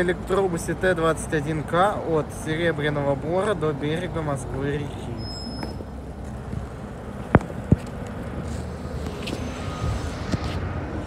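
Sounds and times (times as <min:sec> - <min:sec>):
street noise: 0:00.0 - 0:11.0
electric bus tyres rumbling: 0:05.2 - 0:11.0.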